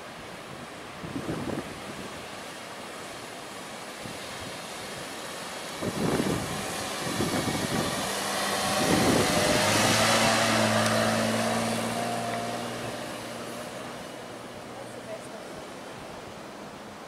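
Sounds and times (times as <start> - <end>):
wind and tyre hiss: 0.0 - 17.0
car engine driving past: 5.7 - 14.8.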